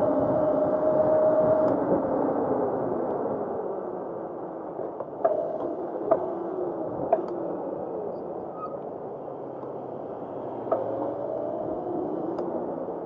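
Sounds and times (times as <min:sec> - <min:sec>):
wheels clicking over paving: 0:04.8 - 0:09.8.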